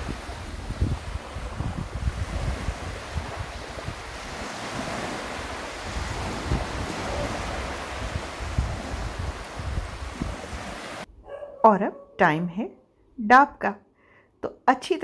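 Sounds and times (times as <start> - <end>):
waves washing onto sand: 0.0 - 11.1
wind rumbling on microphone: 0.0 - 11.1.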